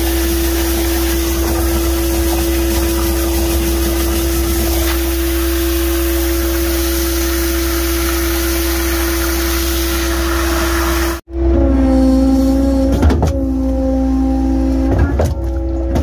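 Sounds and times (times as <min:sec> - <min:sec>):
high-pressure water jet hissing: 0:00.0 - 0:11.2
truck engine and pump droning: 0:00.0 - 0:16.0.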